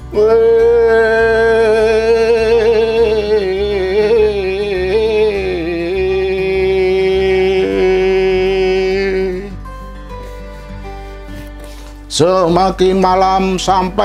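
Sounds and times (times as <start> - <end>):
man singing long note: 0.0 - 9.6.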